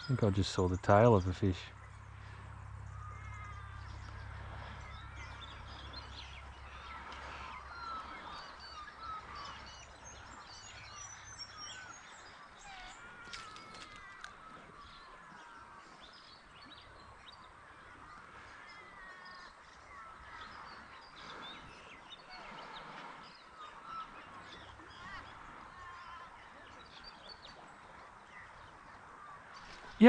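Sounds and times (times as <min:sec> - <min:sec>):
birds chirping and whistling: 0:00.0 - 0:30.0.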